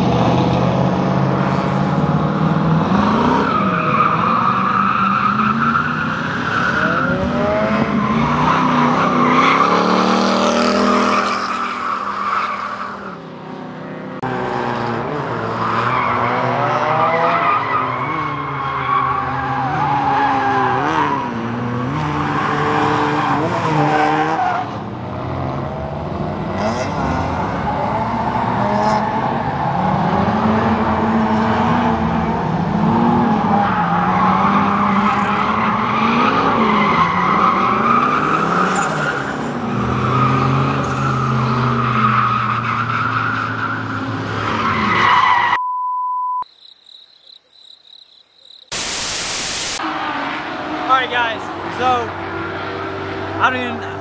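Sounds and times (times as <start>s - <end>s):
tyres squealing on asphalt: 1.2s - 13.4s, 15.3s - 45.6s
test-tone beep: 45.6s - 46.5s.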